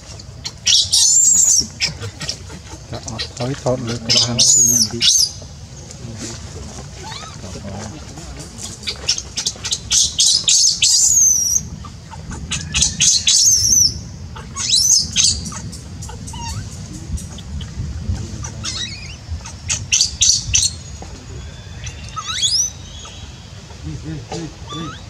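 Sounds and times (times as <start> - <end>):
infant monkey crying squeals: 0.7 - 5.4, 7.0 - 7.4, 8.8 - 17.5, 18.4 - 20.8, 21.4 - 23.8, 24.4 - 25.0.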